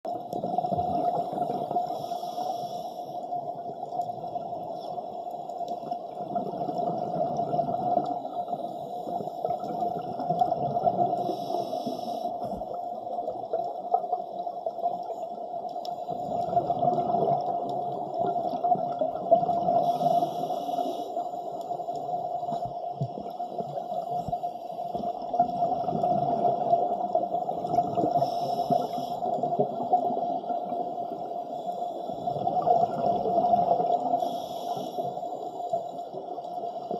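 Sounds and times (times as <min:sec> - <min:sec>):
underwater low hum: 0:00.0 - 0:36.9.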